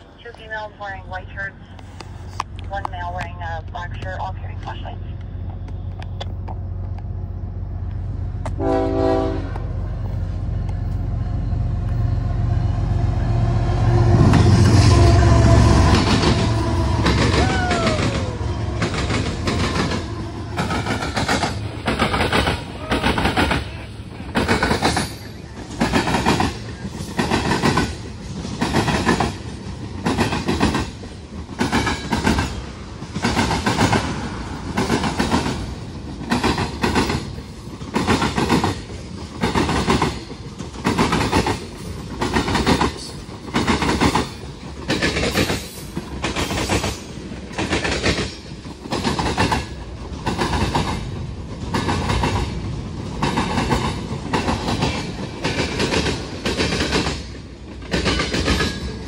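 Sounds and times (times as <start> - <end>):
train wheels clattering over crossing: 14.2 - 59.0.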